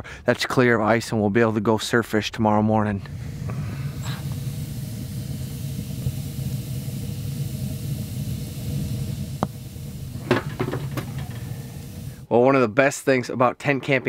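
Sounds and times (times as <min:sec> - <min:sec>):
wood fire burning in stove: 0:02.9 - 0:12.3.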